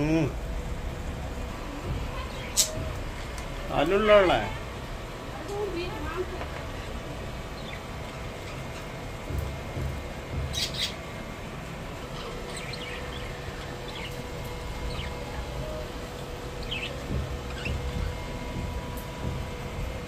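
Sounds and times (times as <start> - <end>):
budgerigars chirping: 10.5 - 11.0, 16.6 - 17.8.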